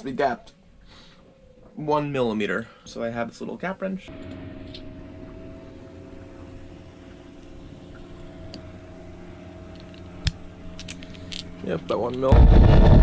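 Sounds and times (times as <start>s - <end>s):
faint whine: 0.0s - 13.0s
low mechanical drone: 4.1s - 13.0s.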